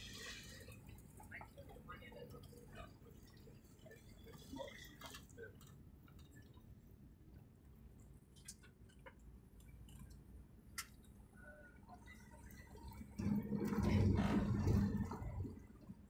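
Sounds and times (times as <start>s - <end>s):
faint clicks and ticks: 4.9s - 6.7s, 8.0s - 11.2s.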